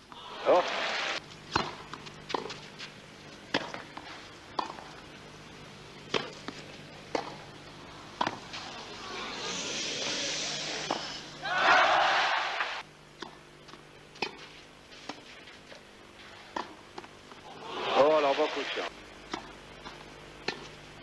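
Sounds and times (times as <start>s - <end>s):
crowd cheering: 0.1s - 1.2s, 11.4s - 12.8s, 17.5s - 18.9s
tennis ball struck with racquets: 1.5s - 2.6s, 3.5s - 5.0s, 6.1s - 7.5s, 8.2s - 8.7s, 13.2s - 15.3s, 16.5s - 18.2s, 19.3s - 20.8s.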